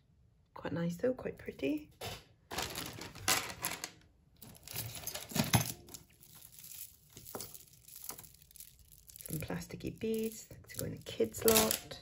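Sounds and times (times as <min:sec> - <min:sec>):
jewellery jingling and clinking: 0:04.4 - 0:12.0.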